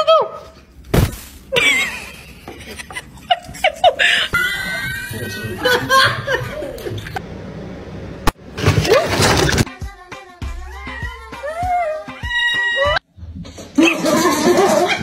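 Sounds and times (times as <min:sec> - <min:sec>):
people chuckling: 0:01.5 - 0:07.2, 0:13.8 - 0:15.0.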